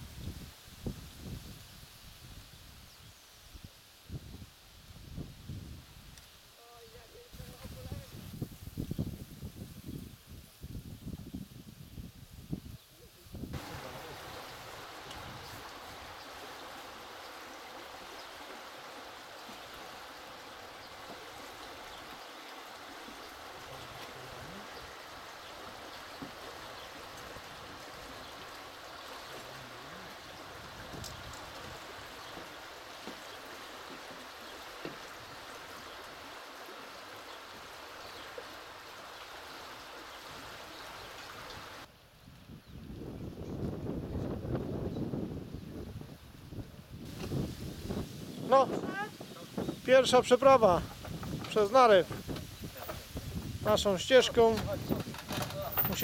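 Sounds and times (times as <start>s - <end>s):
flowing water rushing: 13.5s - 41.9s, 47.0s - 56.0s.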